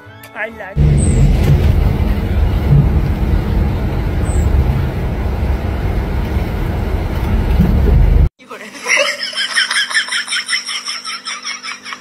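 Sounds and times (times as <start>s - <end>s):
bus engine rumble: 0.8s - 8.3s
road noise: 0.8s - 8.3s.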